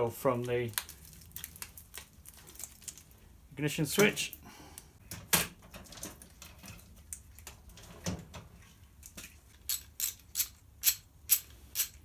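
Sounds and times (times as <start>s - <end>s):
metal parts clinking: 9.6s - 12.0s.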